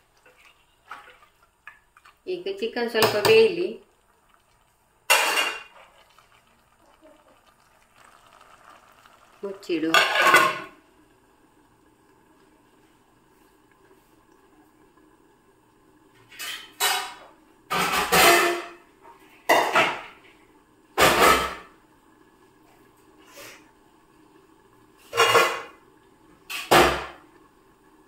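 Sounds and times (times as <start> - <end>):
steel pots clattering: 3.0 - 10.8, 16.2 - 18.8, 25.0 - 25.8.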